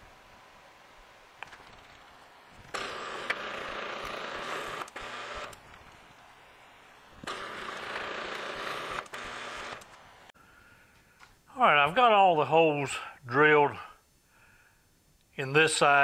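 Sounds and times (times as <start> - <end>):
drill bit cutting metal: 2.7 - 5.6, 7.2 - 9.9.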